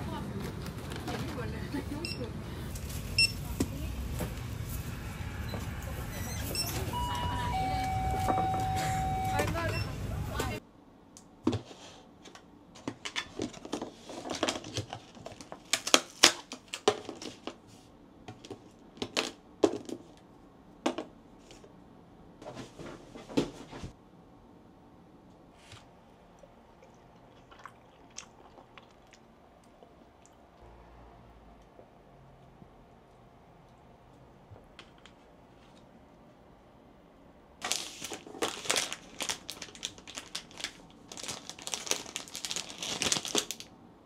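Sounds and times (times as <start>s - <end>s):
plastic packaging crinkling: 37.6s - 43.7s.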